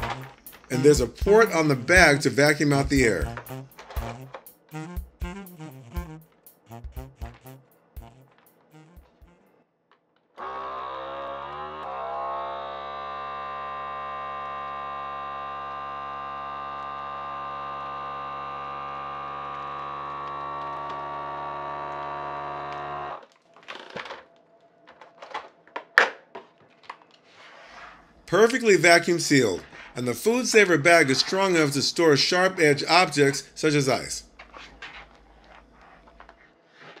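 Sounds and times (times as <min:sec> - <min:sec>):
vacuum pump motor hum: 0:10.4 - 0:23.2
plastic rustling: 0:23.2 - 0:28.2, 0:34.3 - 0:37.0.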